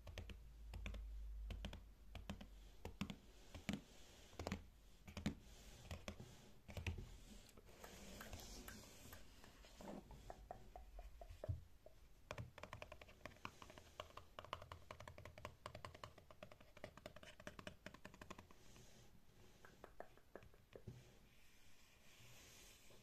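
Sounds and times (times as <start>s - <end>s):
fingernails tapping on notebook: 10.3s - 18.5s.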